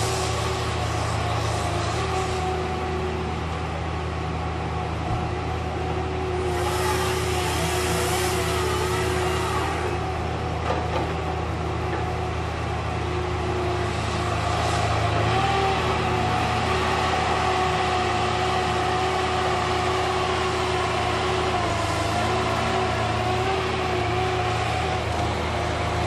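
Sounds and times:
diesel engine drone: 0.0s - 26.0s
high hydraulic whine: 6.4s - 11.4s.

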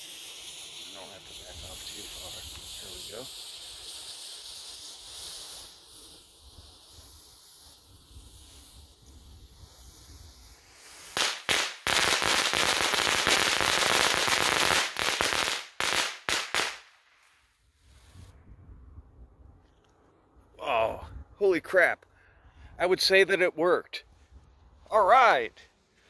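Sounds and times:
fuse hissing: 0.0s - 11.8s
firecrackers popping rapidly: 0.0s - 18.3s
firecracker bangs: 10.4s - 16.9s.

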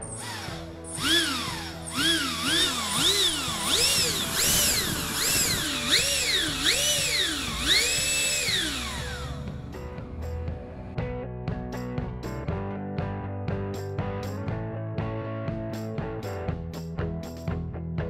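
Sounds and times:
electric fan motor whining: 0.0s - 10.4s
background music: 0.0s - 18.0s.

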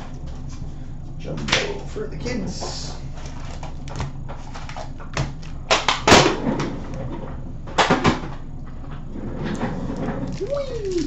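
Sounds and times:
foil packs being handled: 10.3s - 11.0s.

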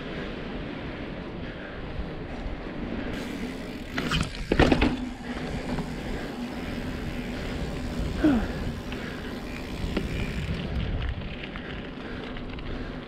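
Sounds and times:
bike tyres humming on asphalt: 0.0s - 13.0s
bike clattering impacts: 3.2s - 6.4s.

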